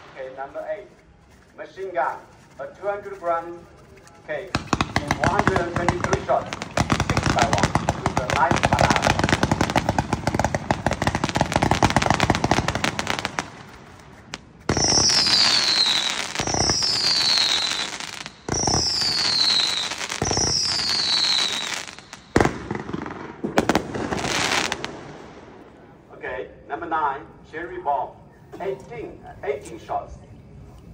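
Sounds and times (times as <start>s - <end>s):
rapid firework crackle: 2.1s - 25.6s
falling firework whistle: 14.7s - 22.4s.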